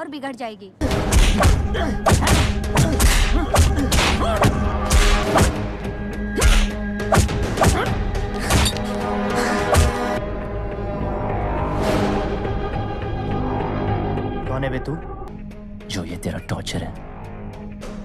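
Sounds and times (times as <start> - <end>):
tense film music: 0.0 - 18.0
low drone: 8.0 - 15.3.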